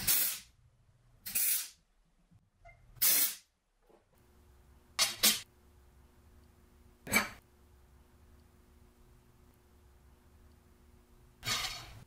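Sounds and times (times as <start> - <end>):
welder crackling hiss: 0.0 - 0.5, 1.3 - 1.8.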